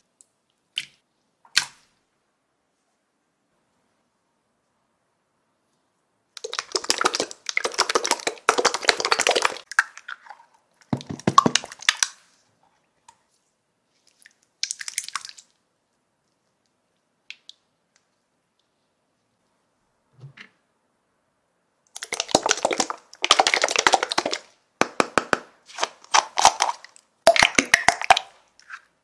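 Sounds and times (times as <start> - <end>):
slime squelching: 6.4 - 12.4, 21.9 - 29.0.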